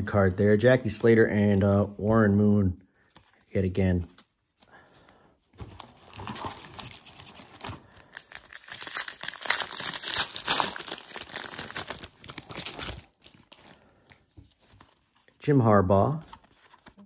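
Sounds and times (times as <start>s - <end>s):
foil wrapper tearing and crinkling: 6.0s - 13.8s.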